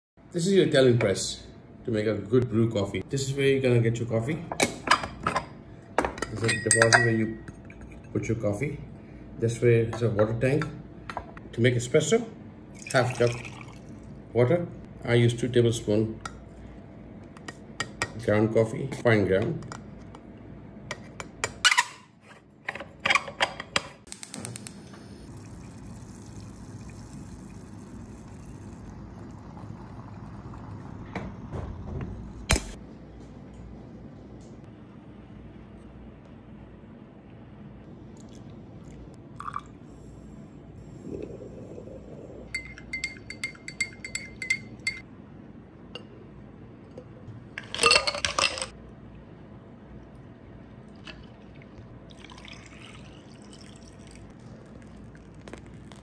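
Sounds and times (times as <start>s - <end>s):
spoon clinking in glass: 6.2s - 7.6s, 42.5s - 45.0s
moka pot hissing and gurgling: 24.1s - 31.0s, 53.7s - 56.0s.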